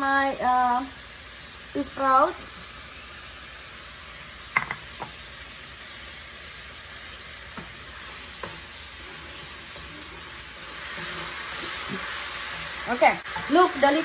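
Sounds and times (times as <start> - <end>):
sauce sizzling in a wok: 0.0 - 14.0
spatula knocking on wok: 4.6 - 5.1.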